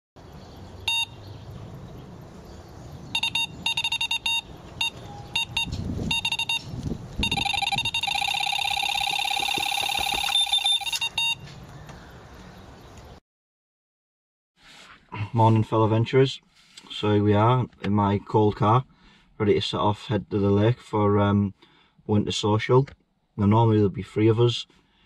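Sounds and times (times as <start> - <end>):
electronic bite alarm bleeping: 0.9 - 1.2, 3.1 - 11.4.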